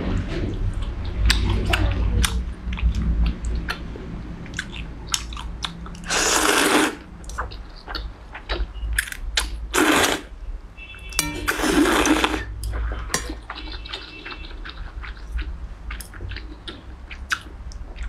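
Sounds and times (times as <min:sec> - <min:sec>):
person slurping noodles: 0:06.0 - 0:07.0, 0:09.7 - 0:10.3, 0:11.5 - 0:12.5.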